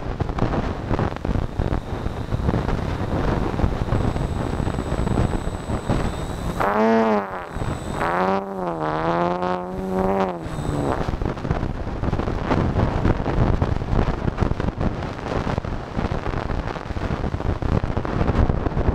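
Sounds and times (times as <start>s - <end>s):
electric motor and propeller whine: 0.6s - 11.8s.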